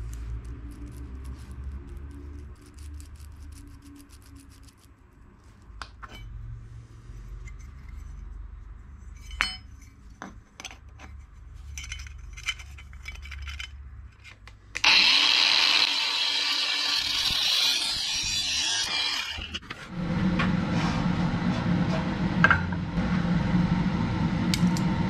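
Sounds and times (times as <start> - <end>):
metal parts clinking: 11.7 - 14.3
angle grinder cutting metal: 14.8 - 19.6.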